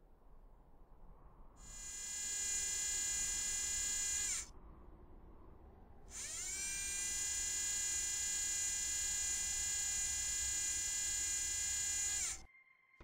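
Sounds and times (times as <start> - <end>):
low steady rumble: 0.0 - 10.3.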